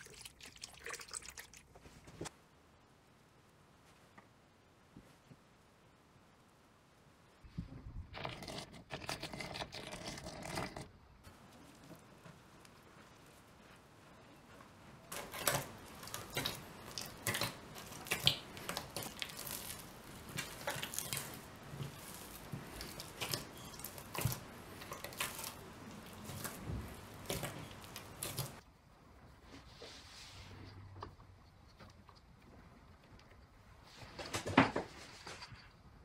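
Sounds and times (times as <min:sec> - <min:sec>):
dough squelching and crackling: 0:00.0 - 0:02.3, 0:07.4 - 0:36.0.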